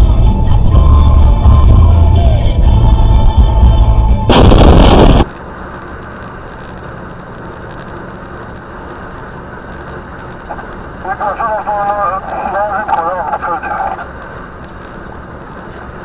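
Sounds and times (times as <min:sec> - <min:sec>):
music: 0:00.0 - 0:05.2
road noise: 0:00.0 - 0:16.0
harsh burst of noise: 0:04.2 - 0:05.3.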